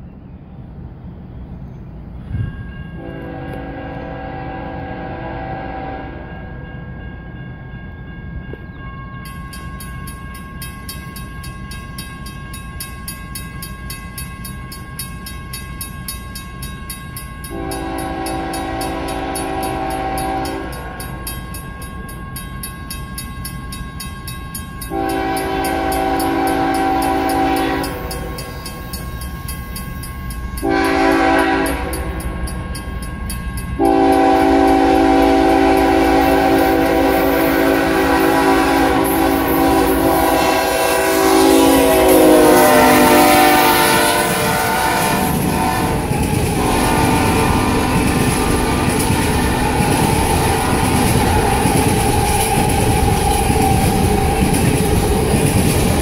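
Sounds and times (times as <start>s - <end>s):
low rumble of approaching train: 0.0s - 56.0s
locomotive horn blasts: 3.0s - 6.7s, 17.5s - 21.1s, 24.9s - 28.5s, 30.6s - 32.3s, 33.8s - 49.8s.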